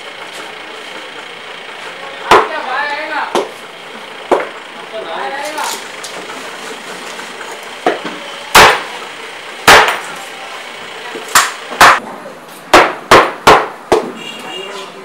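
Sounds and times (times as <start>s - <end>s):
steady background noise: 0.0s - 15.0s
cleaver chopping onto wooden block: 12.7s - 14.1s.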